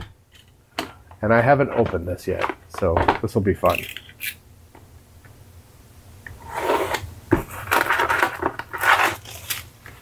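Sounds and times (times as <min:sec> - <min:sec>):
cardboard and plastic rustling: 0:07.3 - 0:10.0.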